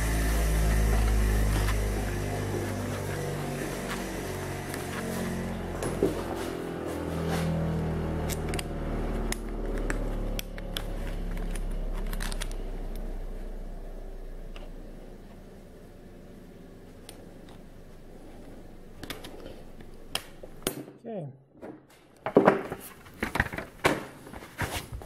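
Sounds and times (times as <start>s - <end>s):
low machine hum: 0.0s - 20.7s.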